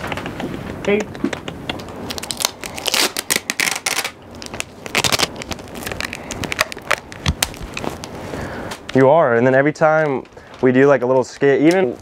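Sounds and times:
adhesive tape ripping: 1.8s - 8.1s
wrapping paper crinkling: 1.8s - 12.0s.

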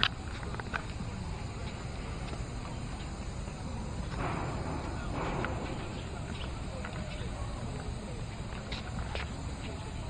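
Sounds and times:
steady low rumble: 0.0s - 10.0s
footsteps on concrete: 0.2s - 3.3s, 4.0s - 10.0s.

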